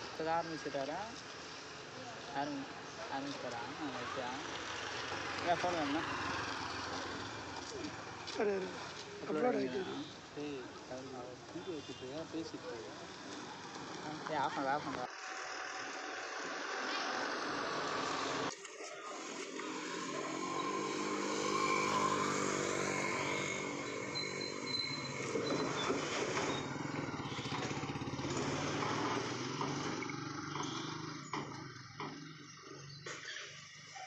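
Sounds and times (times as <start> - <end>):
street noise: 0.0 - 34.0
motorcycle engine passing by: 3.4 - 9.9, 13.0 - 18.5, 19.4 - 33.3.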